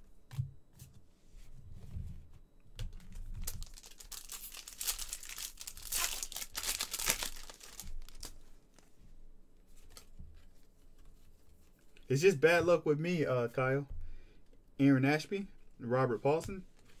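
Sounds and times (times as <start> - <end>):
plastic wrapper crinkling and tearing: 3.2 - 8.8.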